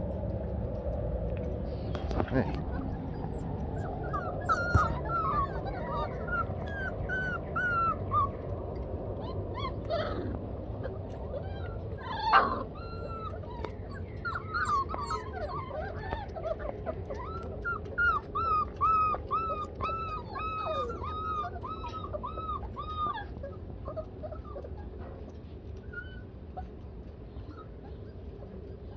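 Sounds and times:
puppies whimpering and yipping: 0.7s - 28.9s.

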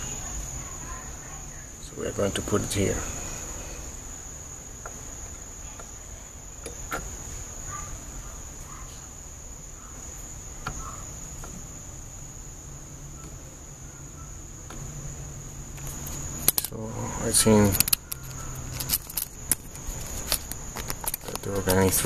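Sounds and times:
vacuum tube pins clicking: 17.6s - 22.0s.

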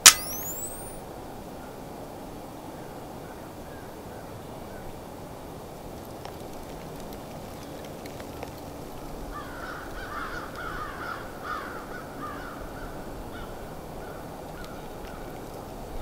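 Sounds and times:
crows cawing: 9.4s - 13.5s.

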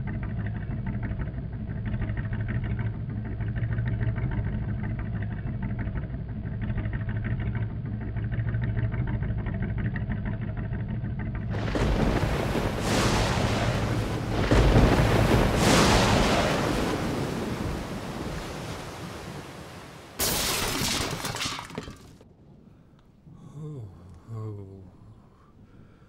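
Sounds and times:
sudden loud burst: 11.5s - 18.5s
wind and surf rushing: 11.5s - 20.2s.

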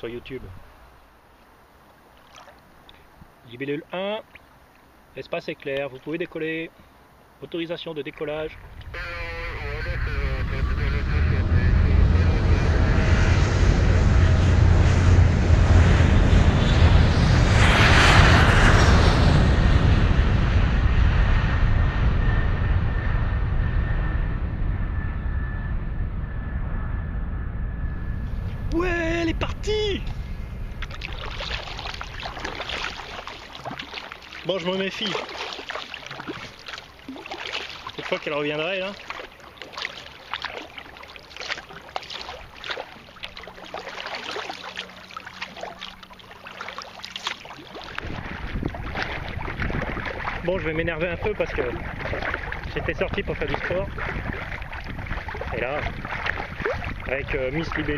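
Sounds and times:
paddle splashing in water: 1.8s - 3.0s, 30.8s - 57.9s
faint high whine: 8.3s - 49.5s
airplane passing overhead: 8.5s - 57.9s.

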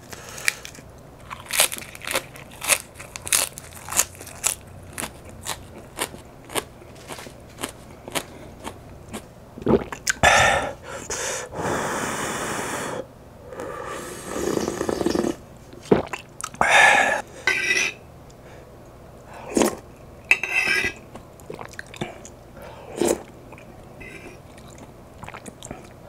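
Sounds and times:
person slurping and gulping broth: 9.6s - 10.8s, 13.6s - 17.2s, 22.9s - 26.0s.

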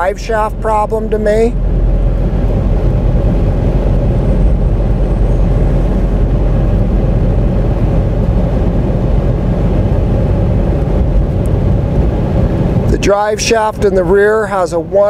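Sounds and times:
pickup truck cabin drone: 0.0s - 15.0s.

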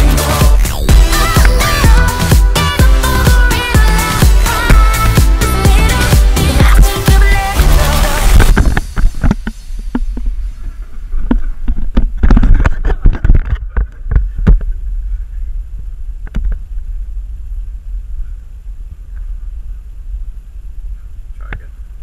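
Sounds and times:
low rumble: 0.0s - 22.0s
knocks and rubbing on camera: 11.2s - 14.7s.

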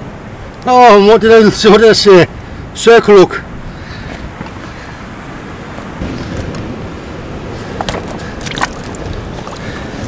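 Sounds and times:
sea wash on rocky shore: 0.0s - 10.0s
wind: 0.0s - 10.0s
light handling knocks: 7.7s - 9.6s.

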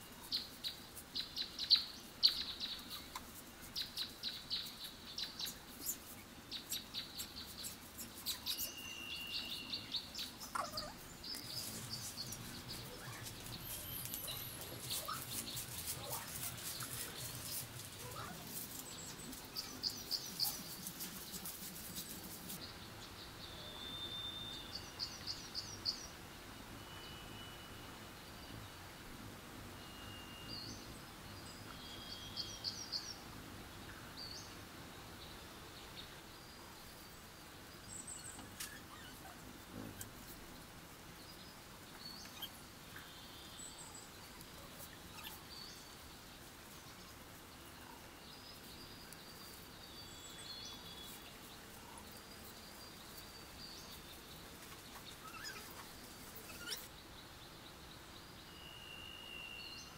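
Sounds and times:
small birds chirping: 0.0s - 29.2s, 29.8s - 59.9s
dry leaf strips clicking and rustling: 10.6s - 22.6s.

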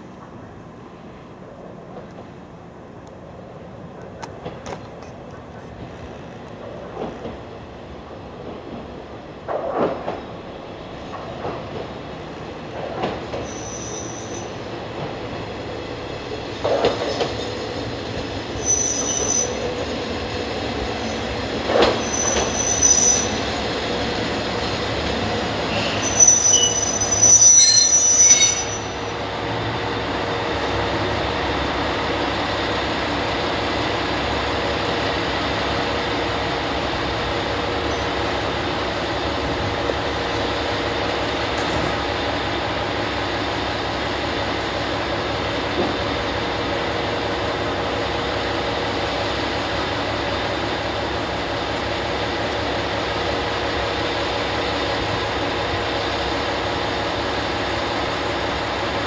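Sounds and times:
train wheels and brakes squealing: 12.8s - 15.4s, 16.3s - 30.2s, 37.8s - 38.5s.

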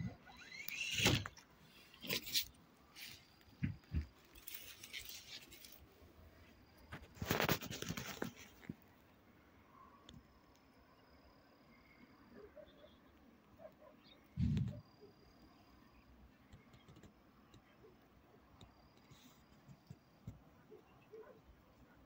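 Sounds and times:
dry reeds rustling and crackling: 0.4s - 8.9s.

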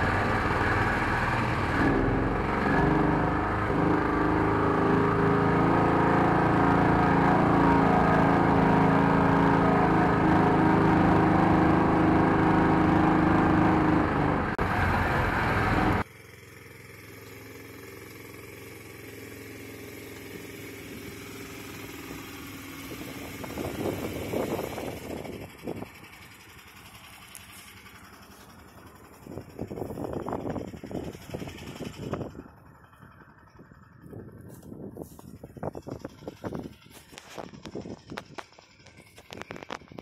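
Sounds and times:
vehicle engine running: 0.0s - 40.0s.

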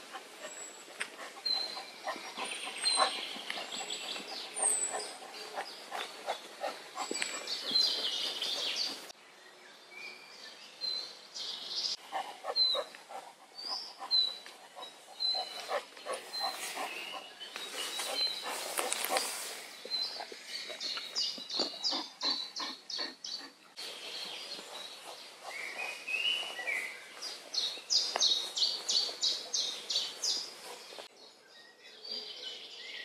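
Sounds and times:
small birds chirping: 0.0s - 33.0s
rustling in leaf litter: 16.2s - 19.8s.

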